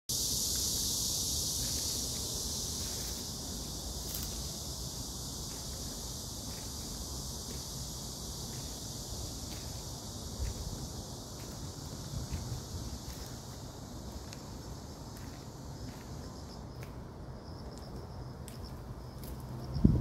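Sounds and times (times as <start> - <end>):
insects chorus: 0.1 - 20.0.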